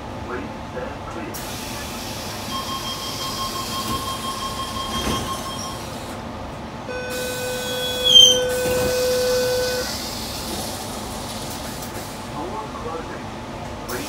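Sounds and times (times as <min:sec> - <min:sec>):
train doors clunking and squealing: 0:02.3 - 0:06.2, 0:07.0 - 0:10.2
high warning tone: 0:02.4 - 0:05.9, 0:06.9 - 0:10.0.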